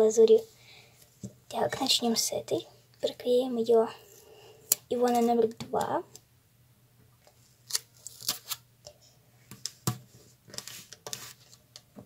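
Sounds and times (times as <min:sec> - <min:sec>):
paper rustling and crinkling: 0:07.7 - 0:08.6, 0:10.5 - 0:11.6.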